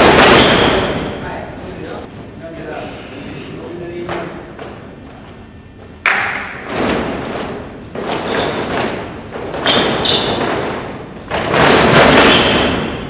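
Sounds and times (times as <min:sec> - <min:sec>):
feet stamping on hall floor: 0:00.0 - 0:01.2, 0:04.0 - 0:13.0.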